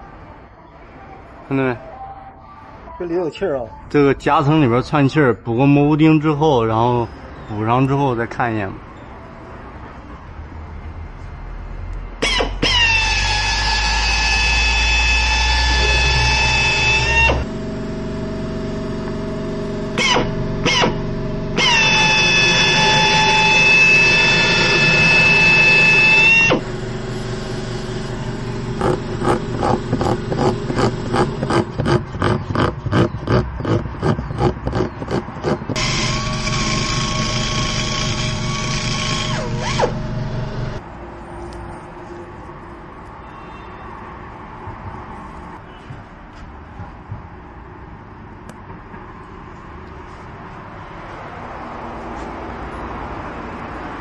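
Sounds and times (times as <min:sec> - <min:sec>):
pneumatic die grinder whining: 0:12.2 - 0:40.8.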